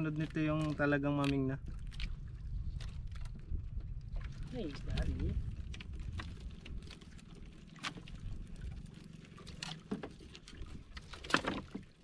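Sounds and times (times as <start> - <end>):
low rumble: 1.5 - 9.5
knocks and clicks from hull: 9.4 - 12.0.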